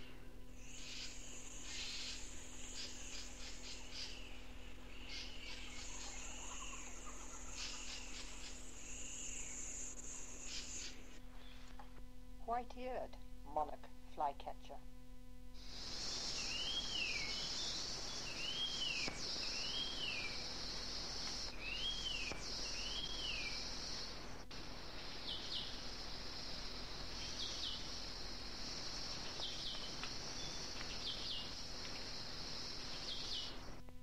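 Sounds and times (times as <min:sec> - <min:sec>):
high insect drone: 0:00.0 - 0:34.0
bird whistling calls: 0:15.7 - 0:20.4, 0:21.3 - 0:23.6.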